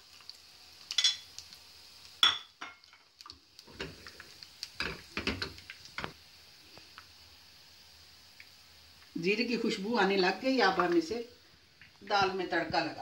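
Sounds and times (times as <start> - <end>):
garlic sizzling in oil: 0.0 - 13.0
frying pan clattering: 0.9 - 1.3, 2.2 - 3.1, 4.8 - 6.2.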